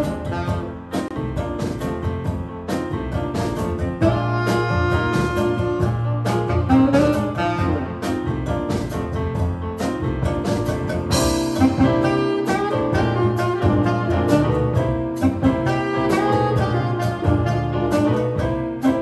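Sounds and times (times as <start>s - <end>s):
saxophone: 0.0s - 1.2s, 4.0s - 8.4s, 11.1s - 19.0s
double bass: 0.0s - 19.0s
keyboard: 0.0s - 19.0s.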